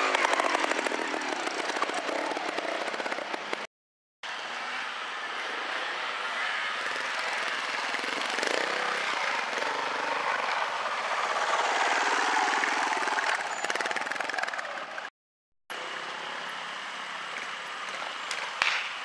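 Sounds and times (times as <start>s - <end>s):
motorcycle engine revving: 0.0s - 3.7s, 6.8s - 15.1s.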